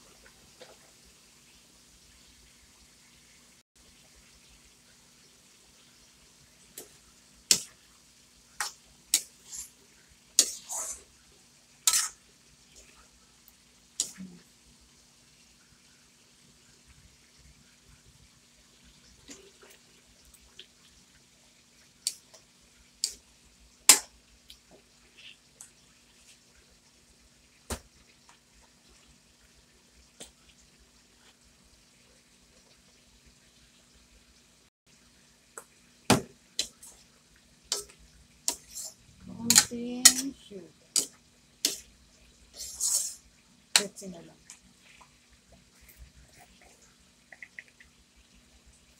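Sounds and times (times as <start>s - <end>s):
metal spatula clanking on a wok: 39.5s - 40.4s.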